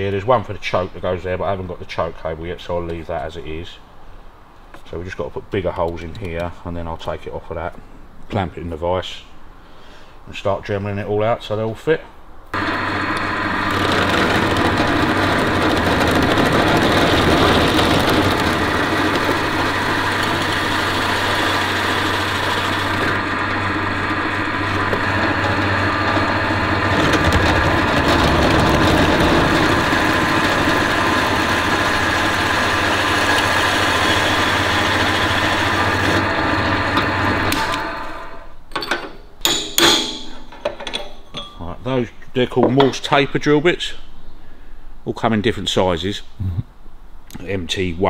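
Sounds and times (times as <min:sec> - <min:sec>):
drill press cutting metal sheet: 0:12.6 - 0:38.5.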